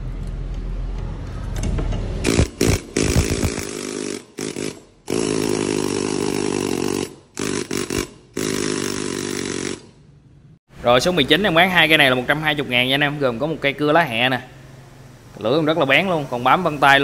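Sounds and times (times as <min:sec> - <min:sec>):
air needle scaler rattling: 0:02.2 - 0:10.0.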